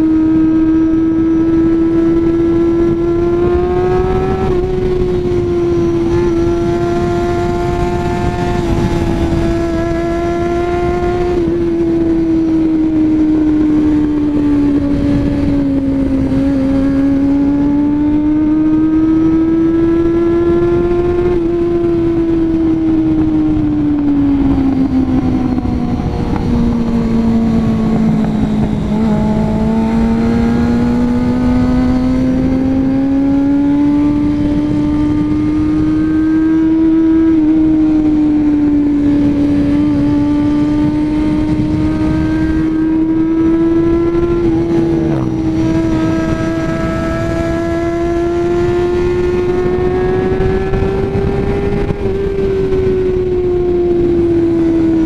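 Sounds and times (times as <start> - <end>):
wind rushing: 0.0 - 55.0.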